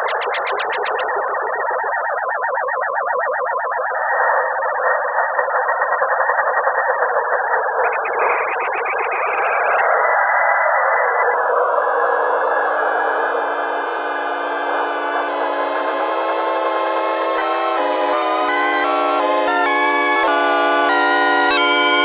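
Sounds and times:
pulsing synthesized noise: 11.8s - 22.0s
bright pulsing layer: 12.3s - 22.0s.

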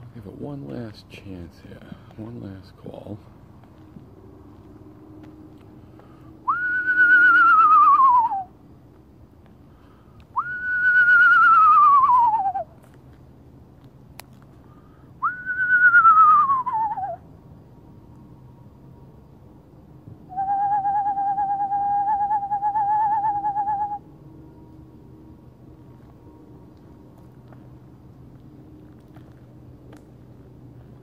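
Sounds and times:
man whistling owl call imitation: 6.4s - 8.6s, 10.3s - 12.7s, 15.2s - 17.2s, 20.3s - 24.1s.

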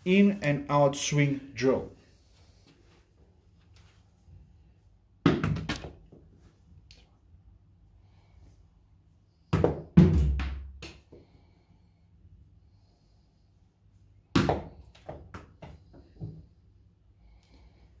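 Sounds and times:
tennis ball thudding and bouncing: 5.2s - 6.2s, 9.5s - 11.2s, 14.3s - 16.4s.

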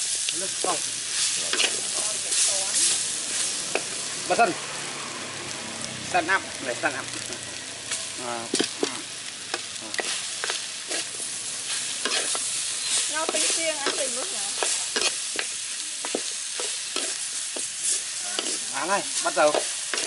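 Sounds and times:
meat sizzling in oil: 0.0s - 20.0s
spatula scraping a pan: 10.0s - 20.0s.

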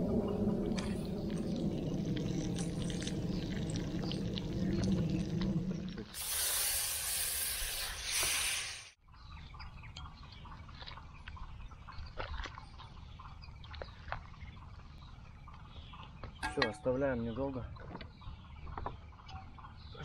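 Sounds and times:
campfire crackles and pops: 0.1s - 6.2s
loud steam hiss: 6.1s - 9.0s.

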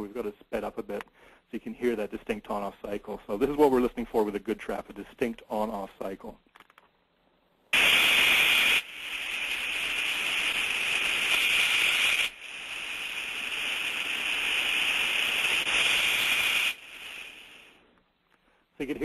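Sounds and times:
steam trap hissing: 7.7s - 17.9s.

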